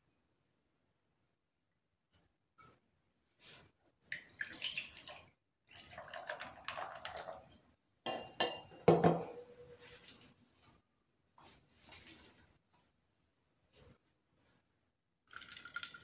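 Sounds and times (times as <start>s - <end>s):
drink poured over ice: 15.3s - 16.0s.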